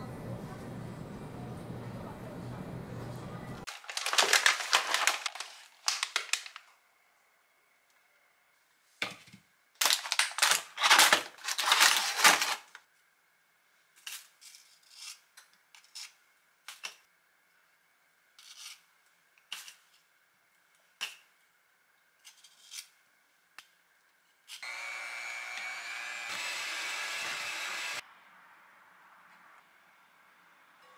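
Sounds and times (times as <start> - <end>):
plastic packaging crinkling: 3.7 - 6.7, 9.8 - 12.8
electric hand mixer running: 24.6 - 28.0.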